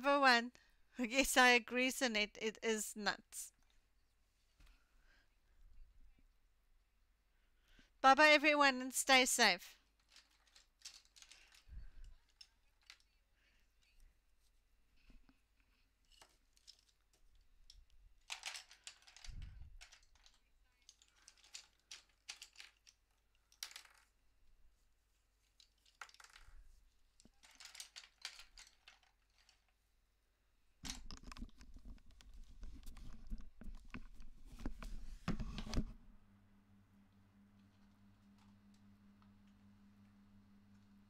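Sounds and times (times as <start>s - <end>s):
small objects handled on desk: 9.9s - 13.2s, 15.7s - 24.2s, 25.4s - 29.8s, 30.8s - 36.0s.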